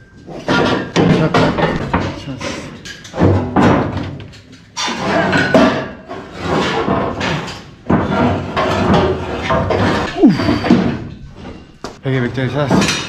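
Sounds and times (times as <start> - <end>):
metal panels scraping and knocking: 0.2 - 13.0
worker straining breath: 10.0 - 11.2.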